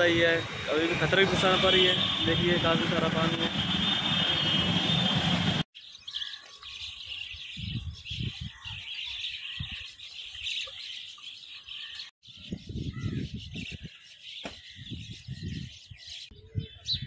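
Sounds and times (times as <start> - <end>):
many birds chirping: 5.8 - 17.0.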